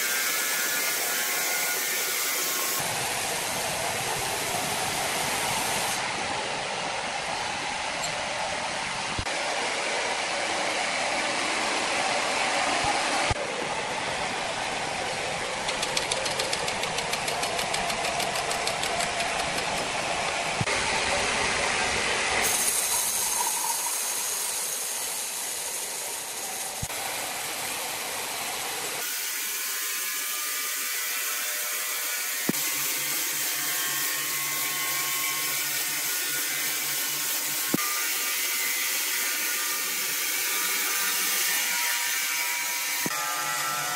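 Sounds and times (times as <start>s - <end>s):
band saw cutting log: 0.0s - 6.1s, 15.6s - 43.9s
sharp clicks: 15.6s - 19.9s.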